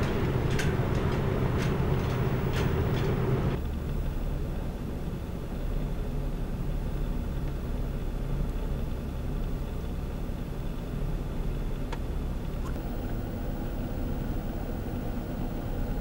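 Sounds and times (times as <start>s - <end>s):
car engine rumbling: 0.0s - 3.6s, 12.0s - 16.0s.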